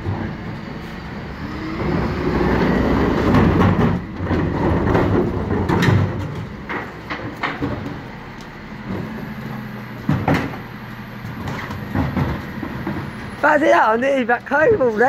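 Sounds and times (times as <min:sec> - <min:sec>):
garbage truck engine running: 0:00.0 - 0:15.0
sharp knocks and clatters: 0:02.6 - 0:09.2, 0:10.0 - 0:13.4.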